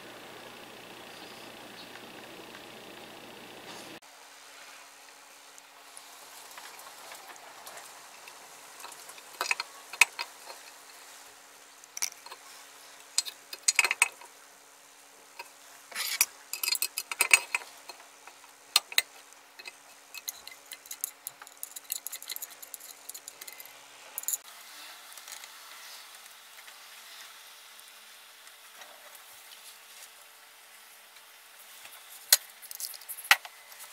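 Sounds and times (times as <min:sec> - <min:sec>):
pliers clicking and scraping metal: 0:15.9 - 0:24.4.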